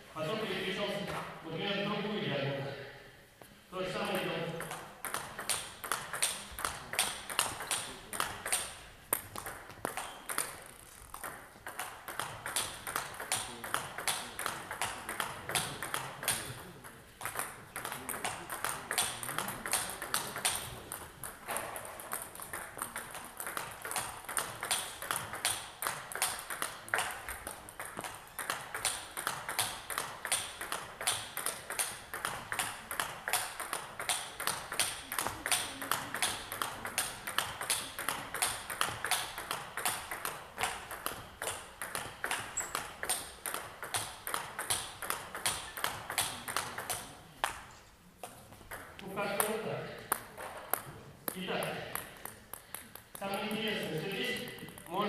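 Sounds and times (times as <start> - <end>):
table tennis ball clicking: 4.6 - 55.0.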